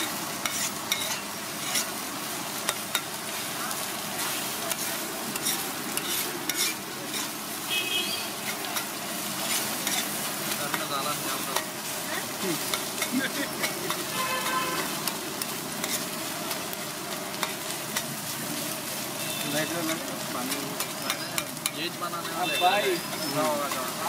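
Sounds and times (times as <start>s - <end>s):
frying sizzle: 0.0s - 24.0s
metal spatula scraping griddle: 0.4s - 2.0s, 4.2s - 7.4s, 8.4s - 11.8s, 12.6s - 16.6s.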